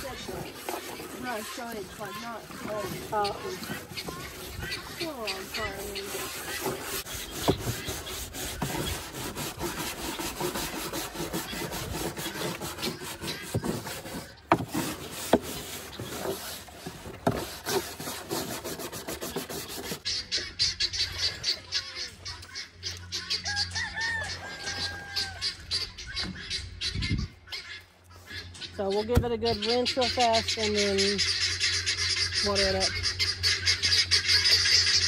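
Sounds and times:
scrubbing water container: 0:00.0 - 0:20.4
chickens calling: 0:00.0 - 0:35.0.

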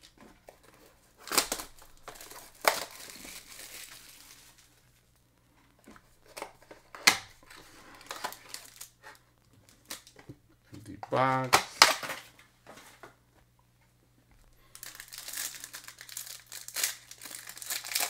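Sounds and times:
card packaging crinkling and tearing: 0:00.6 - 0:04.8, 0:06.2 - 0:10.2, 0:14.7 - 0:18.0.

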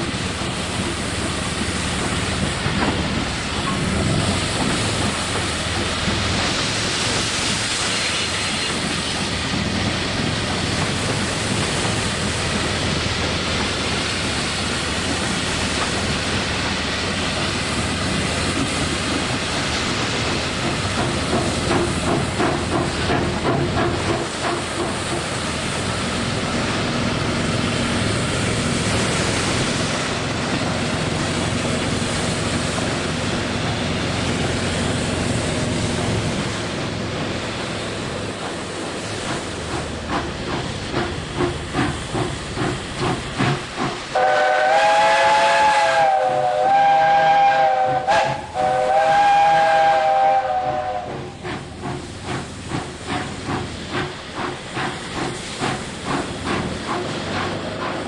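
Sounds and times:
steam hissing: 0:00.0 - 0:58.0
locomotive exhaust chuffs: 0:38.6 - 0:58.0
multi-note steam whistle blasts: 0:44.1 - 0:51.4.

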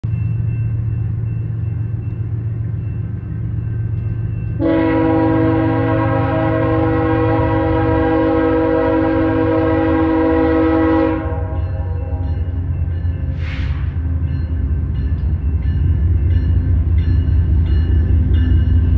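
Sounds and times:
locomotive air horn blast: 0:04.6 - 0:12.3, 0:13.3 - 0:14.0.

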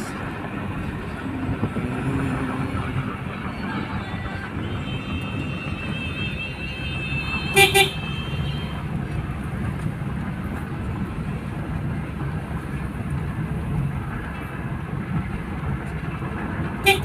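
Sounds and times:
road and engine rumble in car: 0:00.0 - 0:17.0
car horn beeps: 0:03.9 - 0:08.8.

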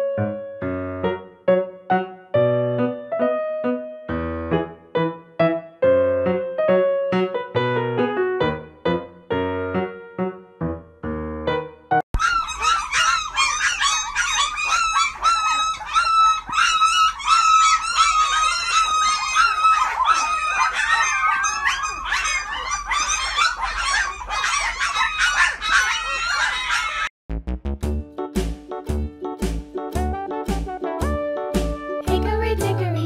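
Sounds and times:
puppies squeaking and whining: 0:12.2 - 0:27.1.

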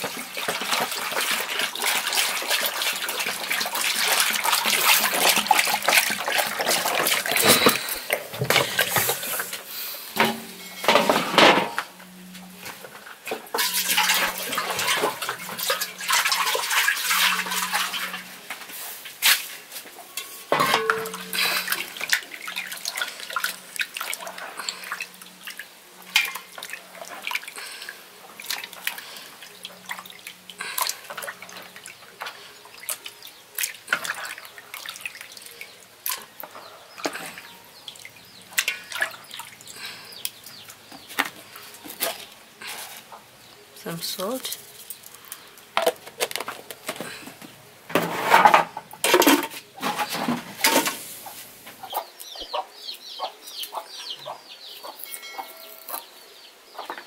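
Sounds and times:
water dripping: 0:00.0 - 0:09.0, 0:13.5 - 0:18.6, 0:20.2 - 0:42.3.

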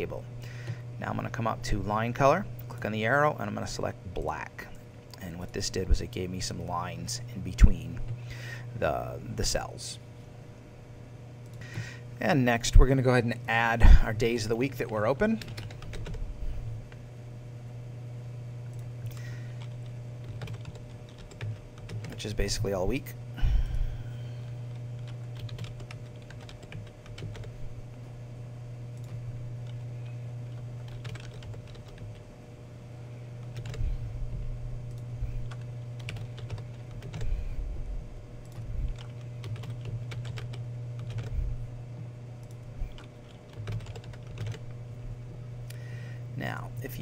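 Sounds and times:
steady low hum: 0:00.0 - 0:47.0
keyboard keys clicking: 0:19.6 - 0:22.2, 0:25.0 - 0:27.5, 0:30.8 - 0:32.2, 0:33.5 - 0:33.8, 0:34.9 - 0:37.3, 0:38.4 - 0:41.4, 0:42.4 - 0:44.6.

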